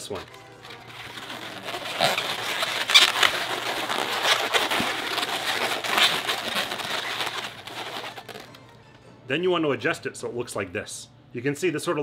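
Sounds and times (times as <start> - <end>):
balloons squeaking and rubbing: 0.0 - 8.6.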